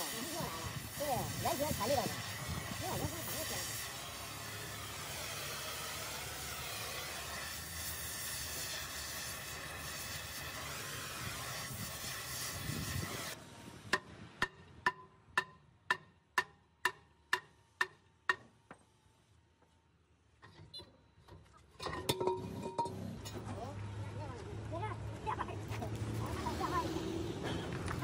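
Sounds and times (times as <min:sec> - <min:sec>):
gas cutting torch hissing: 0:00.0 - 0:13.4.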